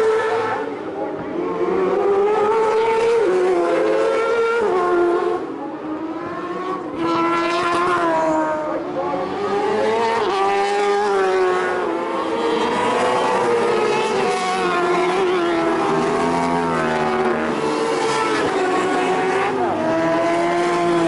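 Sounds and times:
racing motorcycle engines revving: 0.0 - 21.0.

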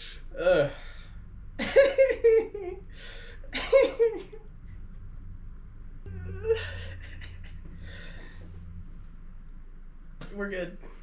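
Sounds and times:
man laughing breathily: 1.7 - 4.2, 6.2 - 8.4
man whimpering: 6.1 - 8.0.

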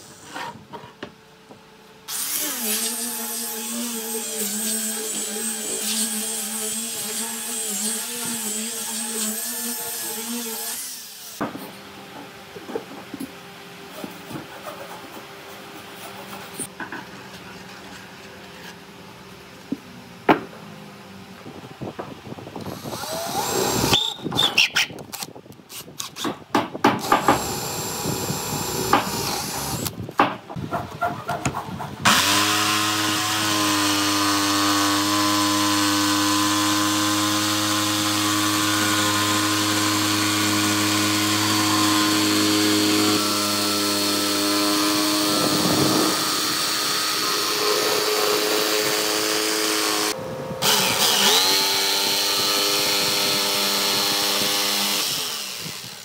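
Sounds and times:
jigsaw cutting wood: 2.1 - 10.9, 22.6 - 24.0, 27.0 - 29.9, 32.1 - 56.0
electric drill in short bursts: 22.6 - 24.8, 27.0 - 29.9, 32.1 - 37.3, 41.6 - 56.0.

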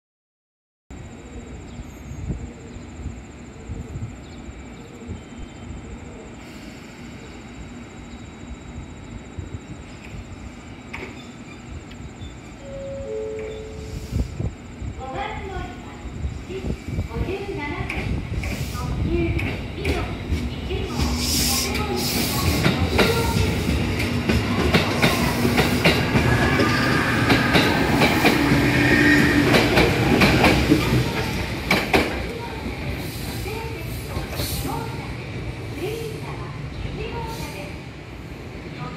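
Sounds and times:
train wheels and motors rumbling: 1.0 - 38.9
train wheels clattering: 17.8 - 34.8.

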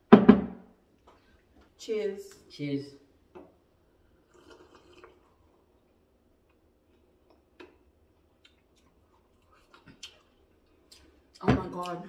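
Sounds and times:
sipping and swallowing: 4.2 - 11.2.

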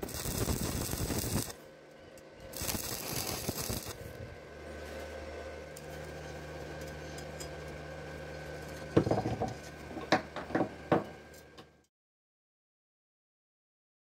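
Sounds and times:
welding machine humming: 0.0 - 10.4.

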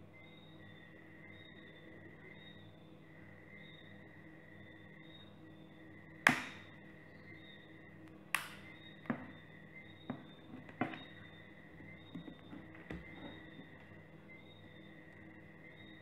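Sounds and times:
plastic case clips snapping: 8.4 - 8.7.

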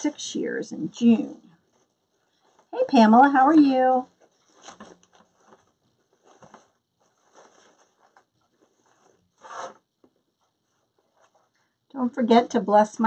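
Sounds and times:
rustling and handling noises: 0.0 - 11.9
soft scrapes: 4.0 - 11.7.

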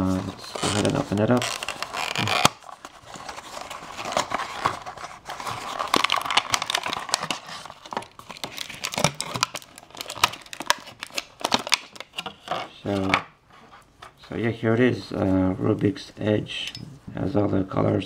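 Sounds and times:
plastic bag crinkling: 0.2 - 12.6.

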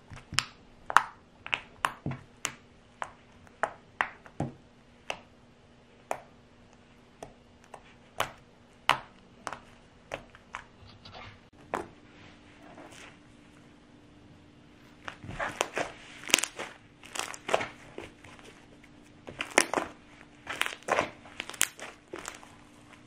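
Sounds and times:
slime sticky clicks and pops: 20.5 - 22.4.

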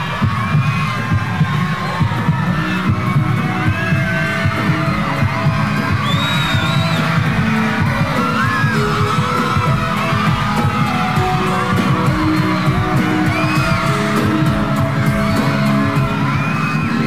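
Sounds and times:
audience cheering and screaming: 0.0 - 17.0
live concert music with low beat: 0.0 - 17.0.

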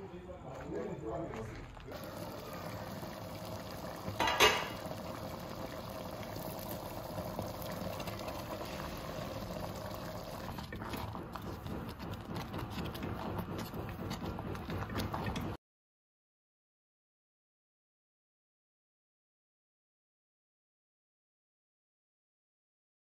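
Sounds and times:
liquid bubbling: 1.9 - 15.6.

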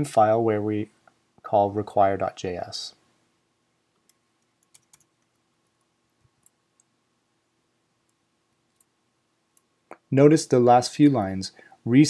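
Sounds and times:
computer keyboard clicks: 4.0 - 6.9.

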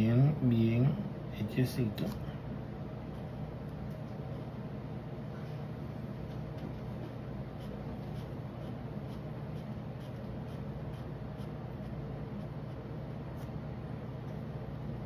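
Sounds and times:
steady low hum: 0.0 - 15.0
pen scratching on paper: 6.1 - 13.5.

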